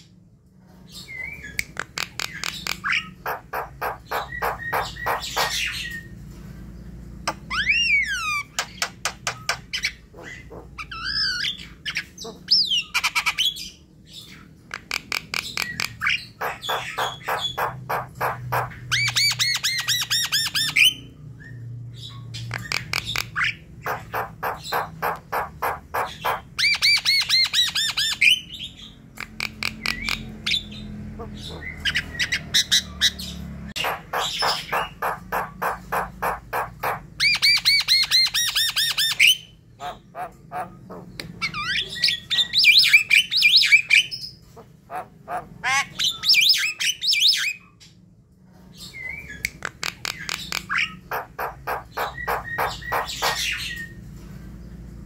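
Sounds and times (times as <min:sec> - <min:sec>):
bird singing harsh repeated notes: 0:01.1 - 0:06.2.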